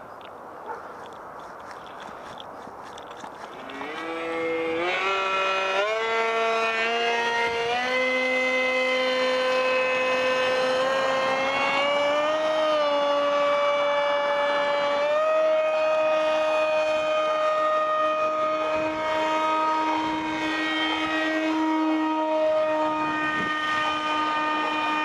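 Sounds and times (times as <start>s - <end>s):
electric motor and propeller whining: 0.0s - 25.0s.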